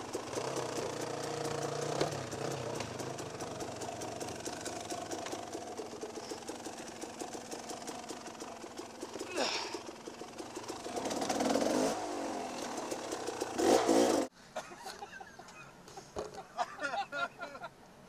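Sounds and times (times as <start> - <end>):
dirt bike engine at low revs: 0.0 - 14.3.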